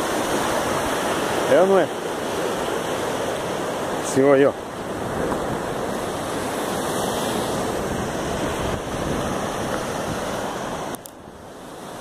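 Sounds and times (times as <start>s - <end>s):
surf breaking on rocks: 0.0s - 12.0s
wind on microphone: 4.8s - 12.0s.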